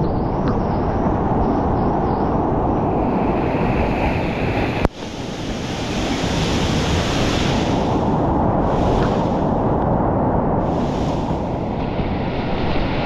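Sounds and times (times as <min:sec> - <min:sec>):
wind buffeting microphone: 0:00.0 - 0:13.0
whitewater rapids rushing: 0:03.2 - 0:09.6.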